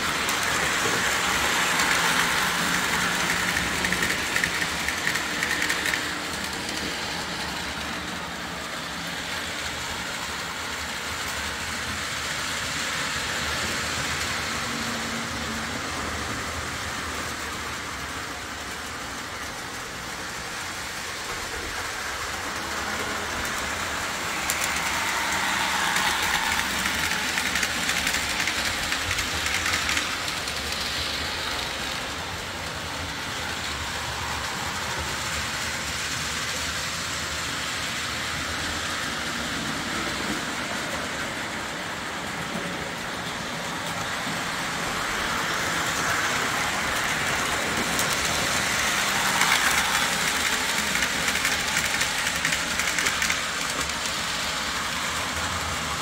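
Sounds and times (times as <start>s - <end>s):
model train rumble and clatter: 0.0s - 56.0s.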